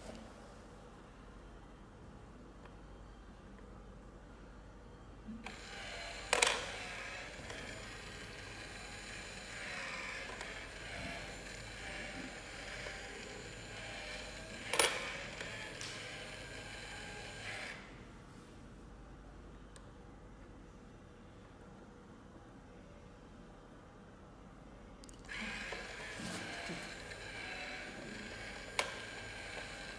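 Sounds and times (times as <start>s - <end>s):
small motor running: 5.4s - 17.9s, 25.3s - 29.9s.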